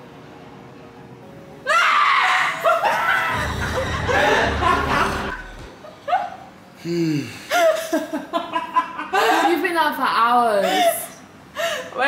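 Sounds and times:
women laughing and giggling: 0:02.6 - 0:06.5, 0:07.5 - 0:09.8, 0:10.4 - 0:11.2
low rumble: 0:03.3 - 0:05.7.

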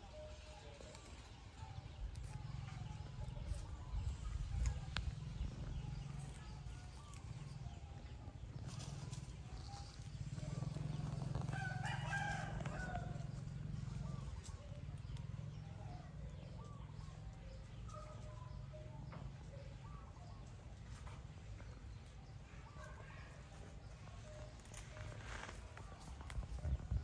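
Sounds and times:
rooster crowing: 0:11.4 - 0:13.3.

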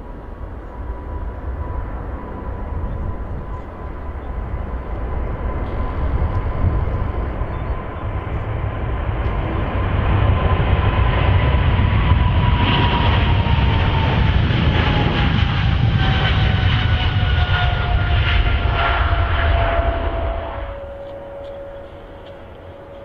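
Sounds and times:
airliner engine roar: 0:00.0 - 0:23.0
engine whine sliding down: 0:11.2 - 0:23.0.

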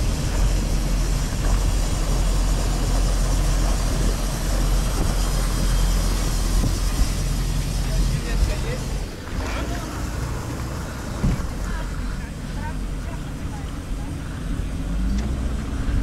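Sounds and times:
wind noise: 0:00.0 - 0:09.5
water washing: 0:00.0 - 0:15.0
motorboat engine rumbling: 0:00.0 - 0:16.0.

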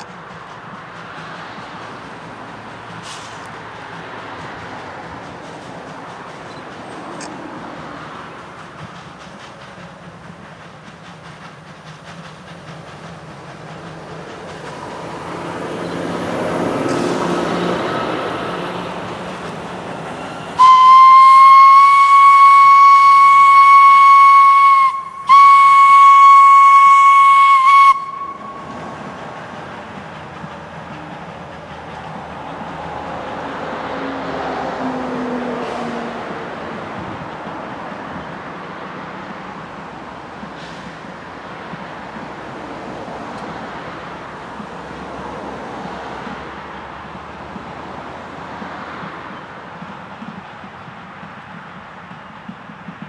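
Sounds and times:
train rumbling: 0:00.0 - 0:53.0
steam whistle blasts: 0:20.6 - 0:28.7.

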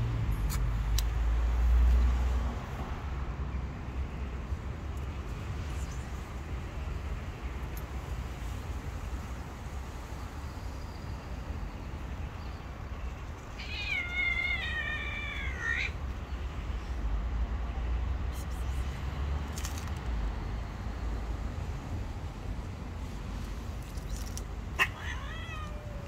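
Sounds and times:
cat meowing: 0:13.5 - 0:16.0, 0:24.7 - 0:26.0.

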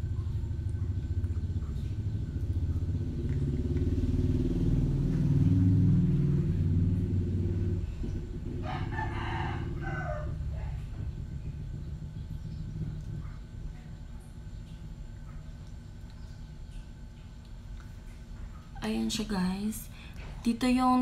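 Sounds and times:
vehicle engine rumble passing: 0:00.0 - 0:21.0
rooster crowing: 0:08.6 - 0:10.8.

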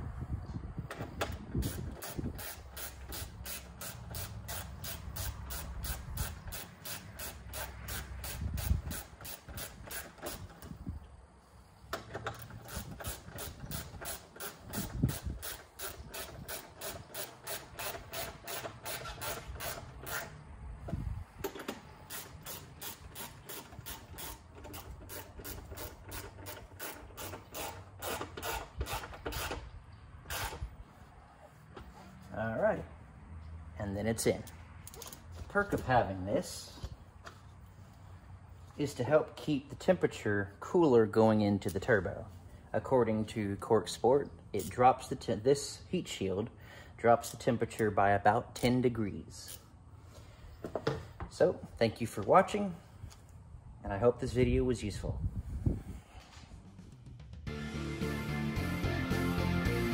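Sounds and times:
hand ratchet clicking: 0:01.2 - 0:10.7, 0:11.9 - 0:20.4, 0:21.4 - 0:29.6.

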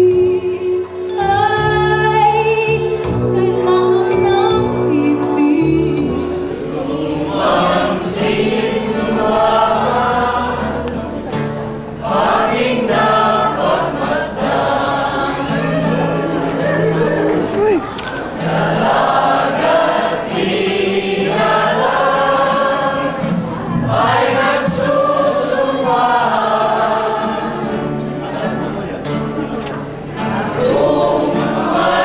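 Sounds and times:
woman singing into microphone: 0:00.0 - 0:06.6
instrumental accompaniment: 0:00.0 - 0:32.0
small choir singing: 0:05.8 - 0:28.8, 0:29.8 - 0:32.0.

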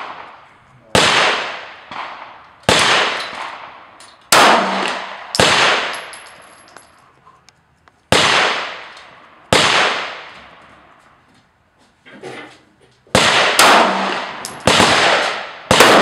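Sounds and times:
loud pistol shots ringing: 0:00.0 - 0:06.3, 0:08.1 - 0:08.9, 0:09.5 - 0:10.3, 0:13.2 - 0:16.0
faint gunshot: 0:13.2 - 0:16.0.

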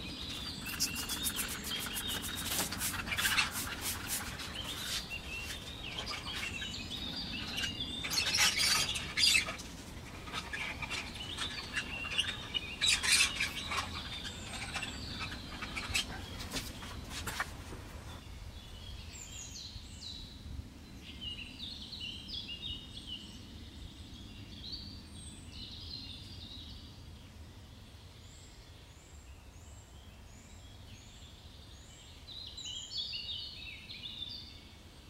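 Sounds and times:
small birds chirping: 0:00.0 - 0:20.3.

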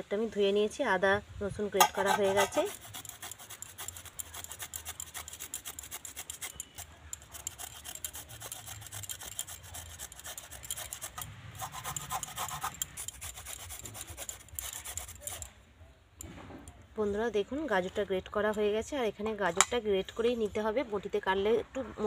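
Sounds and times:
carrot grated on metal grater: 0:01.8 - 0:15.5.

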